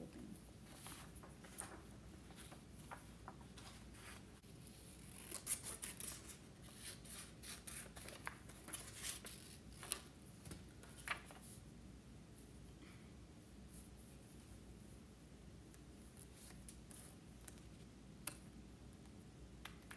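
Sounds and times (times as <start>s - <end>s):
paper rustling: 0.4s - 11.6s.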